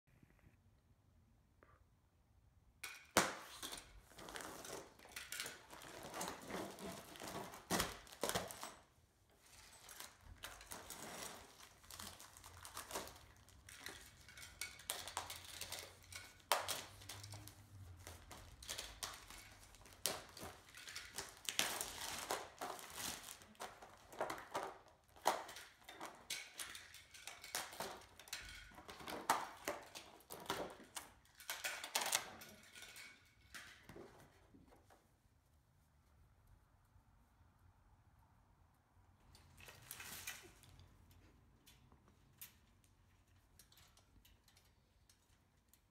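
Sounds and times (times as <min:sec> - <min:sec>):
plastic wrap crinkling: 0:03.2 - 0:33.2.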